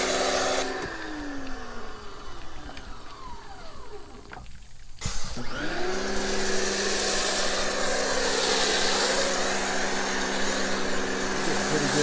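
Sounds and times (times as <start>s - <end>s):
pressure washer motor whine: 0.0s - 4.4s, 5.0s - 12.0s
foam cannon spraying hiss: 6.1s - 12.0s.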